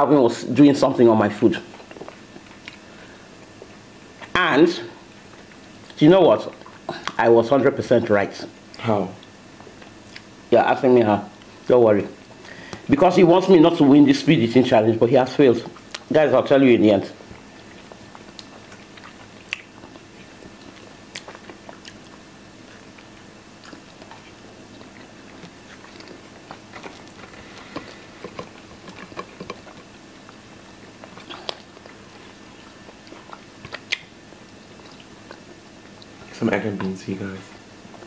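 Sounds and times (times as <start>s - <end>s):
chewing and mouth sounds: 1.6s - 4.3s, 8.7s - 10.4s, 15.6s - 16.1s, 17.2s - 38.0s.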